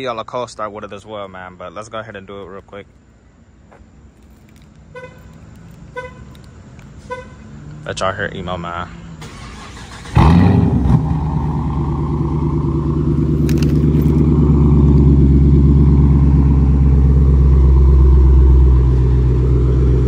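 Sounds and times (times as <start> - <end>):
car engine idling: 4.2 - 20.0.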